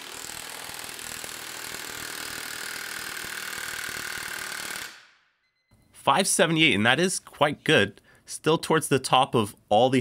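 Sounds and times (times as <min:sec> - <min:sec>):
cordless impact wrench hammering: 0:00.0 - 0:05.2.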